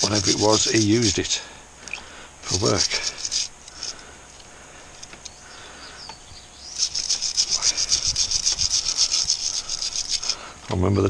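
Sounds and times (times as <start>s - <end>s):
wire brush scrubbing: 0.0s - 1.5s, 2.4s - 4.0s, 6.6s - 10.6s.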